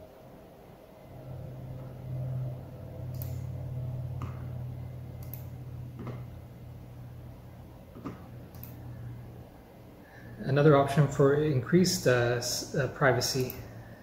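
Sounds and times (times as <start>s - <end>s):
low electrical hum: 0.0s - 14.0s
computer mouse clicks: 3.1s - 3.4s, 5.2s - 6.3s, 8.0s - 8.8s.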